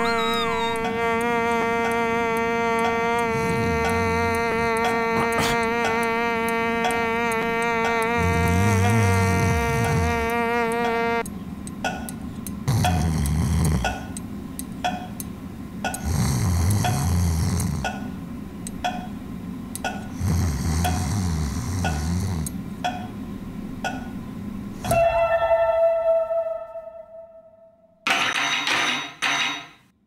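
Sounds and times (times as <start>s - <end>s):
fly buzzing: 0.0s - 11.2s, 12.7s - 14.1s, 20.2s - 22.5s
ticking: 0.0s - 23.1s.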